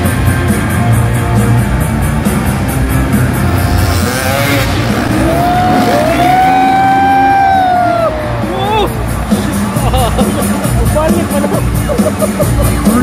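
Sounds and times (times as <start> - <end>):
loud rock music: 0.0 - 13.0
dirt bike engine revving: 2.9 - 7.6.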